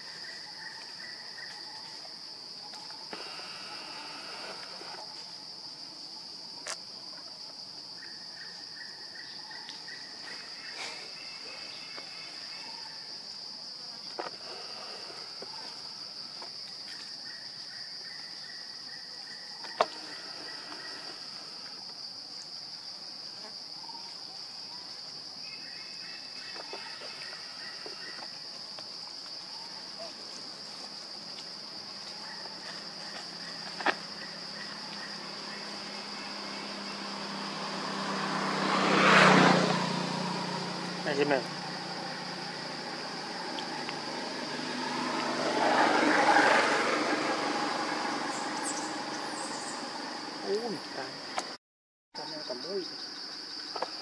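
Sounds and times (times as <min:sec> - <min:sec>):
high-pitched insect drone: 0:00.0 - 0:06.8, 0:07.6 - 0:51.5
low pulsing chirr: 0:31.6 - 0:51.4.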